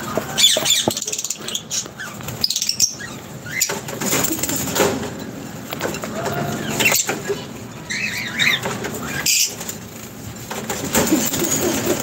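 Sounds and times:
lovebirds chirping: 0.0 - 3.8, 6.5 - 9.6
wings flapping: 8.6 - 12.0.

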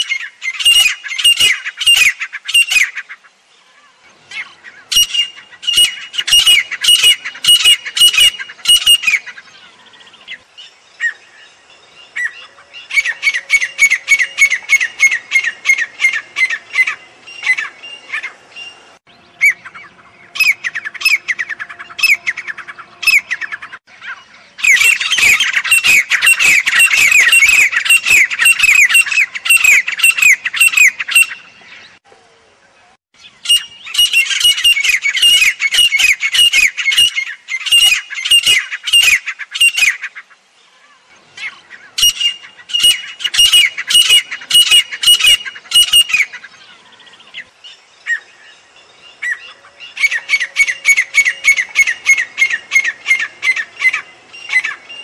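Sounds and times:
bird calling sharp high notes: 24.6 - 31.5.

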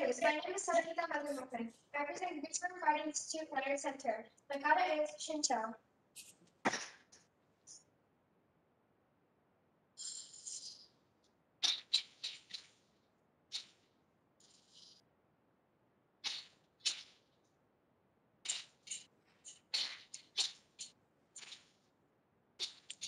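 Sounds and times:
sharp snaps of fabric: 6.2 - 7.3, 16.2 - 17.5.

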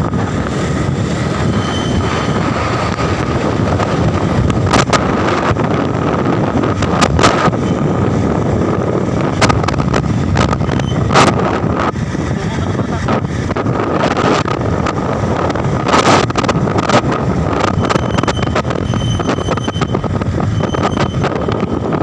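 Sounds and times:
wind rushing over microphone: 0.0 - 22.0.

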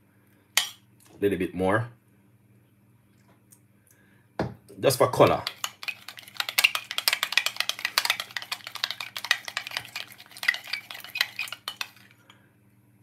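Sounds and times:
teaspoon clinking against glass: 5.4 - 12.3.

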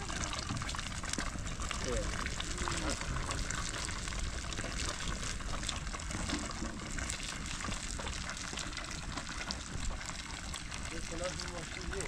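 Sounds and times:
water rushing: 0.0 - 6.6
water drops and splashes: 0.0 - 12.0.

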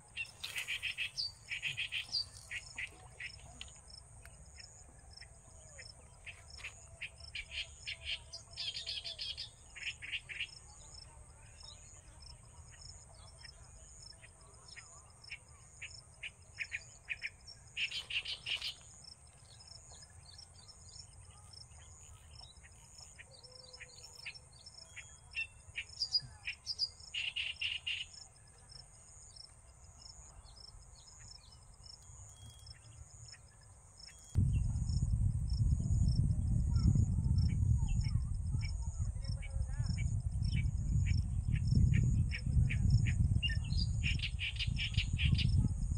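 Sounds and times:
small birds chirping: 0.0 - 34.8, 36.7 - 45.9
low rumble: 34.4 - 44.0.

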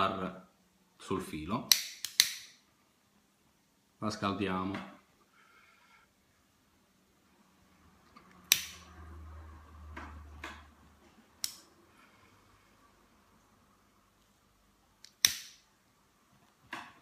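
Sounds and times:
lighter clicks: 1.7 - 2.5, 8.5 - 8.8, 15.0 - 15.6.

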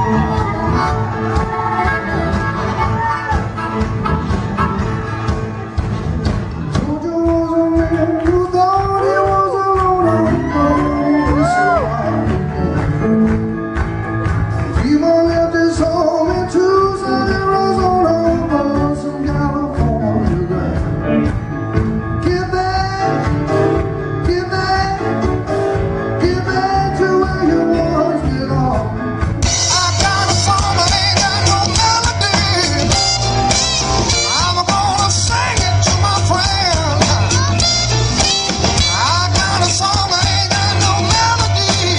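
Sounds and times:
live blues-rock band: 0.0 - 41.9
man singing into a microphone: 6.7 - 12.2, 14.7 - 20.9, 22.2 - 23.3, 24.2 - 25.3, 26.2 - 33.2, 34.1 - 37.7, 38.8 - 41.9.

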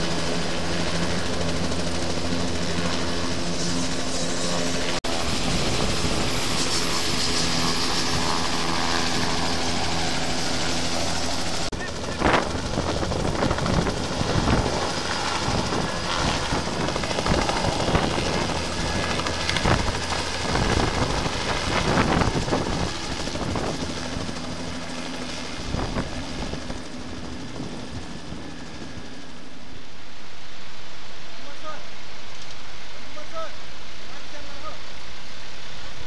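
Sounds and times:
helicopter engine and rotor: 0.0 - 30.4
rough gusts of noise: 3.4 - 24.8.

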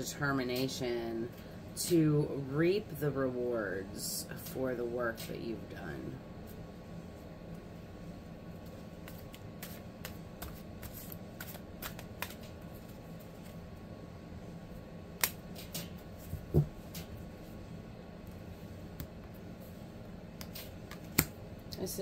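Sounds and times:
cards shuffling and clicking: 9.0 - 13.6.

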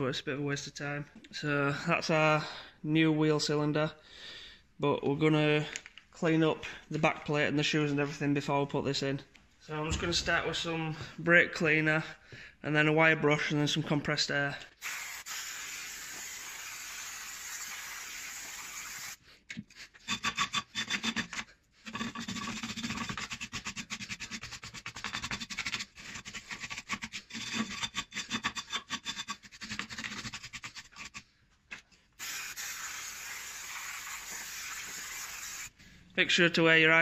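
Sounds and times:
aerosol spray hissing: 14.8 - 19.2, 32.2 - 35.7.

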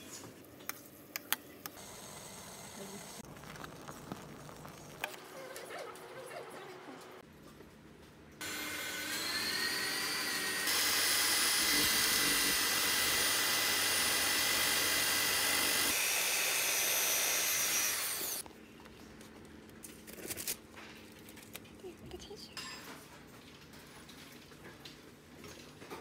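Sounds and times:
electric drill motor whine: 8.4 - 18.4.

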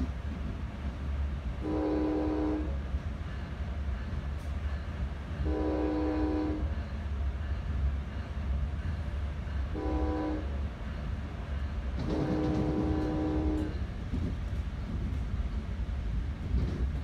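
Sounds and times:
train wheels rumbling on rails: 0.0 - 17.0
train air horn blasts: 1.6 - 2.8, 5.4 - 6.8, 9.7 - 10.6, 12.0 - 13.8.

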